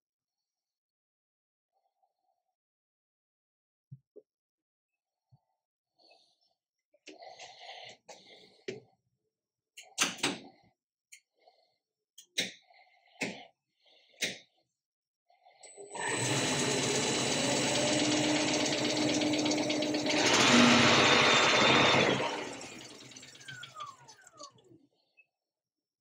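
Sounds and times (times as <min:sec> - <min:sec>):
drive motor whine: 0:15.7 - 0:24.6.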